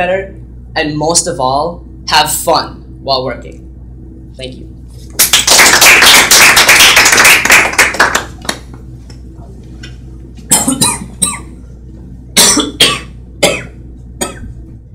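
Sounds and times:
applause: 5.2 - 8.8.

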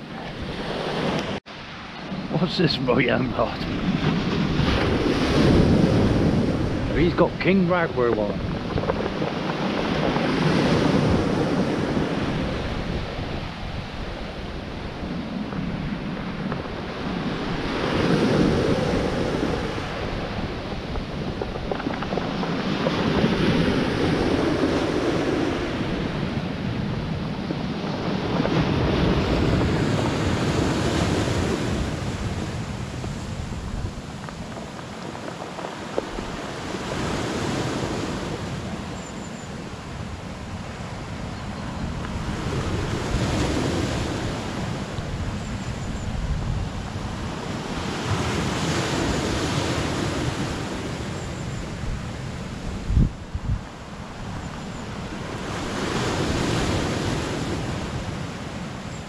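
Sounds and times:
waves washing over pebbles: 0.0 - 39.0
wind buffeting microphone: 0.0 - 59.0.

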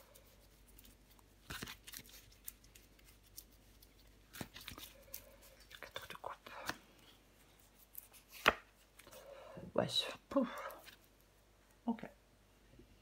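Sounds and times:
cards rustling and shuffling: 0.0 - 9.2.

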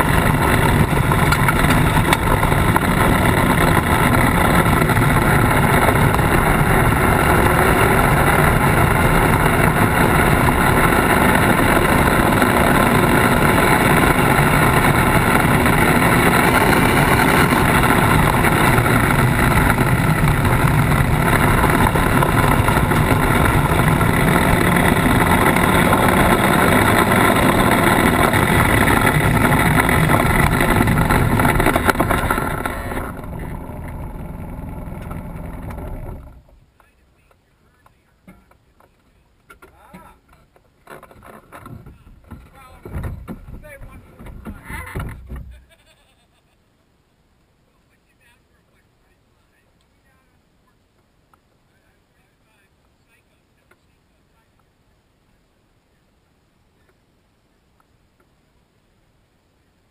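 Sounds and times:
tyres on gravel: 0.0 - 45.8
off-road vehicle engine running: 0.0 - 45.9.

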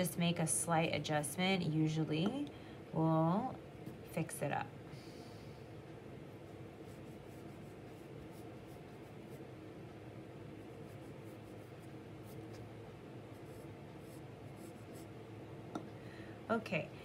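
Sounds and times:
pencil scratching on paper: 6.5 - 9.5, 10.6 - 12.7, 13.3 - 15.1.

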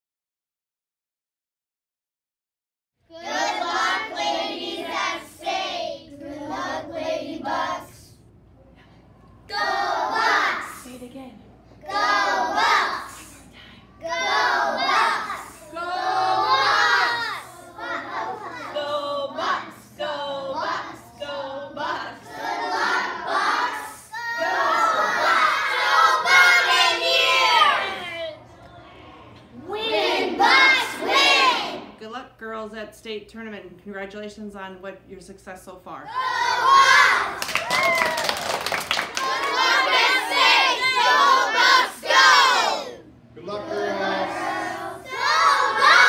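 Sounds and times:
young children singing: 3.1 - 8.2, 9.4 - 10.8, 11.8 - 32.0, 36.1 - 37.5, 39.0 - 46.0.

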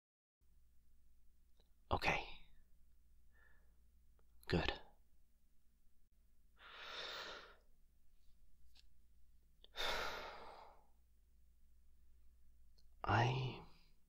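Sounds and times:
man breathing: 3.3 - 3.8, 6.6 - 7.7, 9.6 - 11.0.

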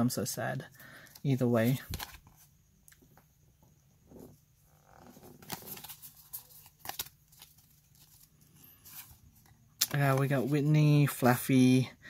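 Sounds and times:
trading cards rustling and clicking: 1.0 - 2.5, 5.1 - 11.3.

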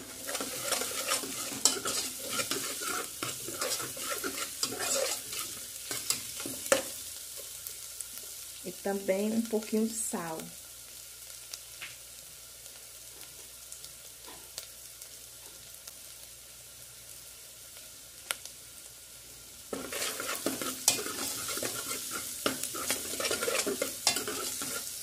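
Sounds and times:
stirring scraping in pan: 0.0 - 7.0, 19.7 - 25.0
onions frying in oil: 0.0 - 25.0.

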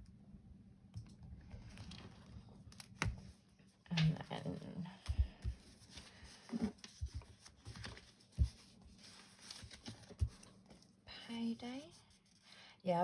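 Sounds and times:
paper rustling: 5.5 - 10.9.

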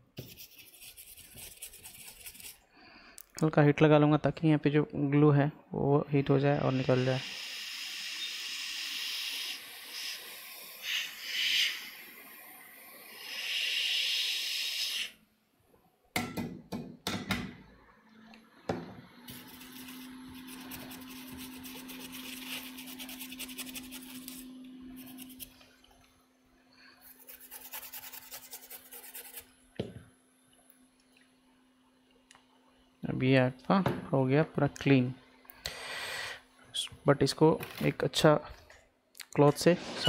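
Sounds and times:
scratchy rubbing: 0.2 - 2.6, 19.3 - 25.6, 27.0 - 29.5
hot air station hissing: 6.5 - 15.2, 35.7 - 36.4.

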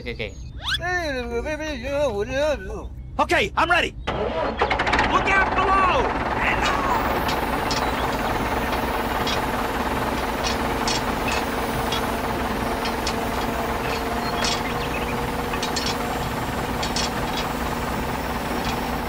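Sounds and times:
tractor engine idling: 4.1 - 19.0.

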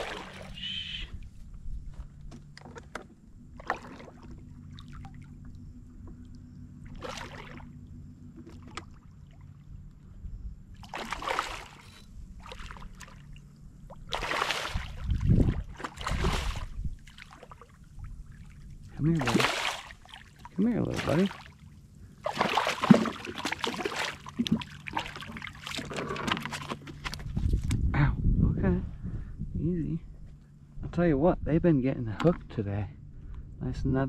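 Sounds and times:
fish splashing at the surface: 0.0 - 0.8, 3.6 - 5.4, 6.9 - 7.8, 10.8 - 13.2, 14.0 - 18.5, 19.2 - 21.6, 22.2 - 26.8.

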